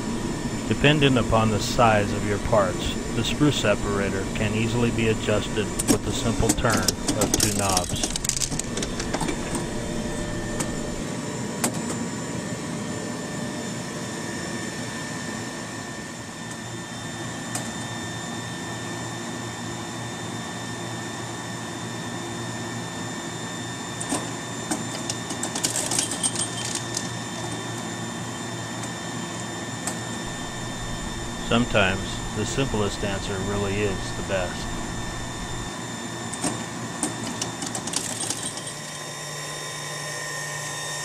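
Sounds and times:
machine humming: 0.0 - 11.0, 30.2 - 35.7
clicks and rattles: 6.8 - 9.6.

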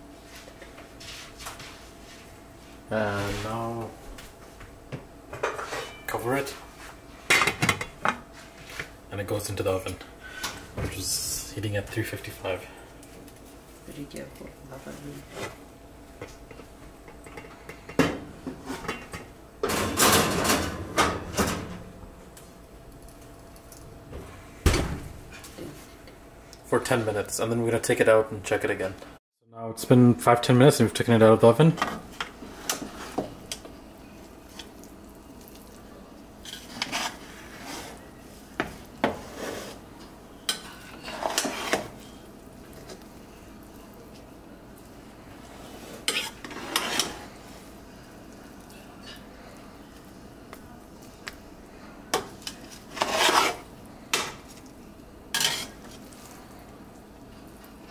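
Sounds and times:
utensil scraping and rustling: 32.2 - 33.7, 36.3 - 48.7, 51.8 - 56.7
pot scraping on metal oven rack: 36.4 - 38.0, 39.0 - 39.9, 40.5 - 42.0, 45.4 - 47.4, 52.4 - 54.4, 55.3 - 56.0.

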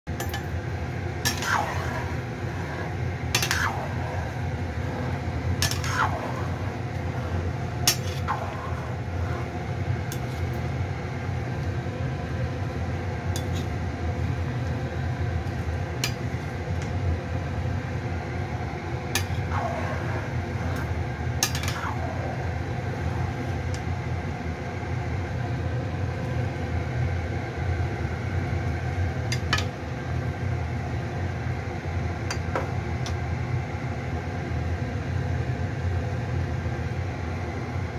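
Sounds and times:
pan boiling with low rumble: 0.1 - 37.9.

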